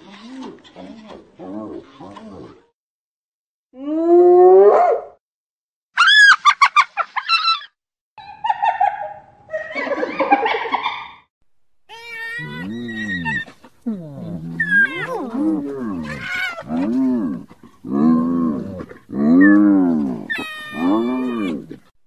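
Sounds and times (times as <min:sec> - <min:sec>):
hyena calling and giggling: 0:11.9 - 0:21.9.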